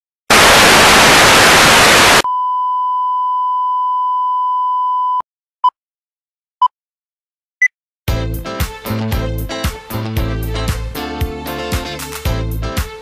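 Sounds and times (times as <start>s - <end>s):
television static hiss: 0.3s - 2.2s
steady test-tone beep: 2.2s - 5.2s.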